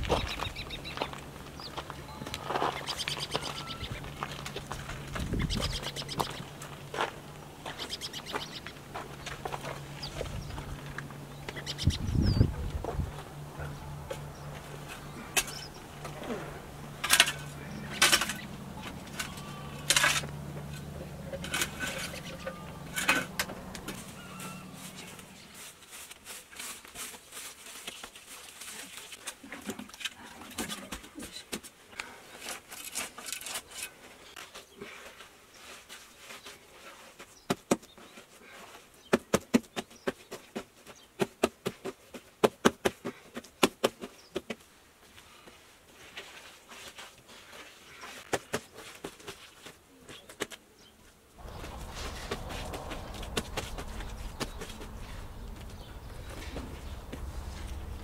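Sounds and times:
shovel scraping earth: 0:14.5 - 0:30.0, 0:32.2 - 0:37.2, 0:51.4 - 0:58.0.

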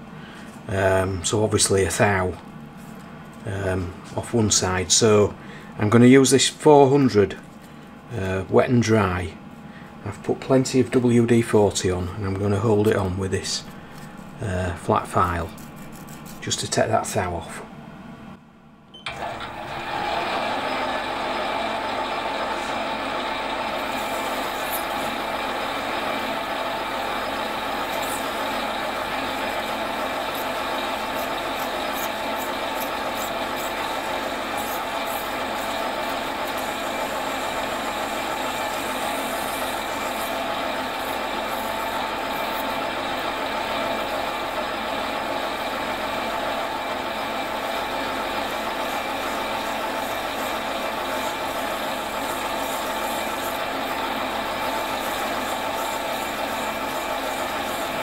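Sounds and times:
metal lathe running: 0:19.2 - 0:58.0.

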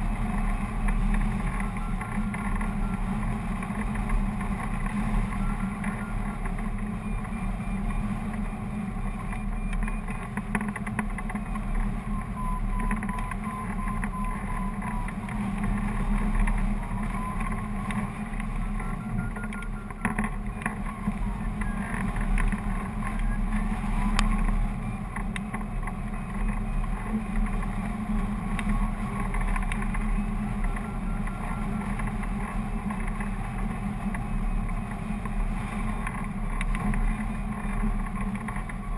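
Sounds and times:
wind rushing and buffeting: 0:00.0 - 0:38.9.

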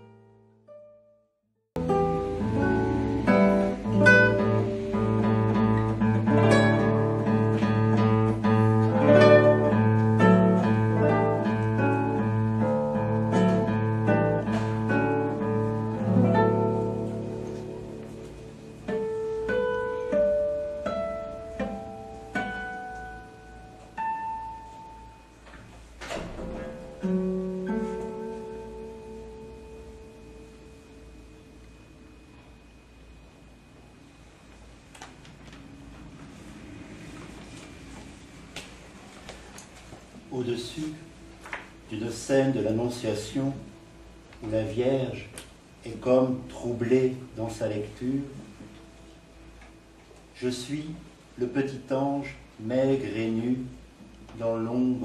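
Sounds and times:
plucked string music: 0:01.8 - 0:31.8.

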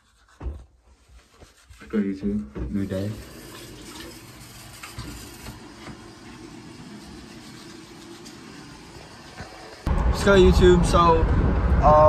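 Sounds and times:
toothbrush scrubbing teeth: 0:06.9 - 0:08.6.

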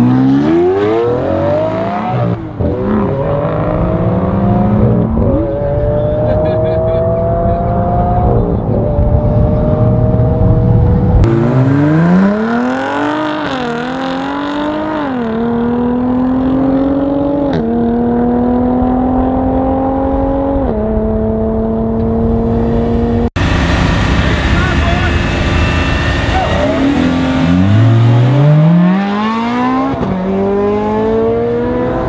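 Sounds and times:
car engine accelerating through gears: 0:00.0 - 0:32.0
engine holding steady high note: 0:22.4 - 0:29.0.

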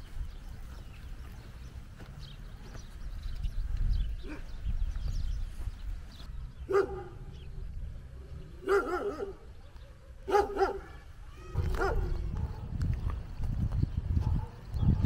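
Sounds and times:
dog barking: 0:06.7 - 0:07.2, 0:08.6 - 0:09.5, 0:10.2 - 0:11.0, 0:11.6 - 0:12.7, 0:14.2 - 0:15.0.

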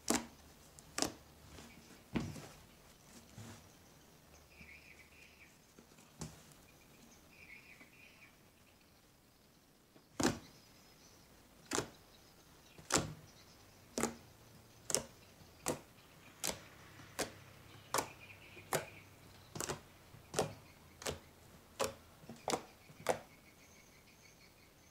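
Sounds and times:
slime popping under fingers: 0:19.5 - 0:21.2.

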